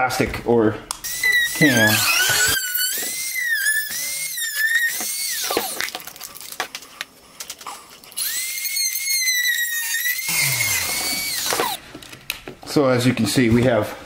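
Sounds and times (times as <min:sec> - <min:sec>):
rotary tool cutting plastic: 0:01.1 - 0:06.0, 0:08.1 - 0:11.8.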